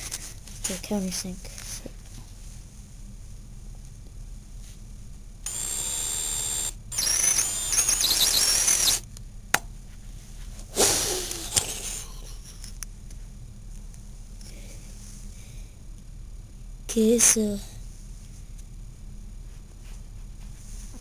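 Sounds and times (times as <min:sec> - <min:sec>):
cordless drill drilling into wood: 0:05.5 - 0:09.0.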